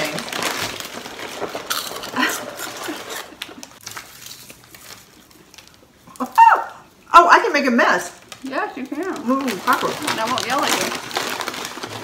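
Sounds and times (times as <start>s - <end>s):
chips being crushed by hand: 0.0s - 6.3s
foil chip bag rustling: 0.0s - 6.3s, 8.0s - 12.0s.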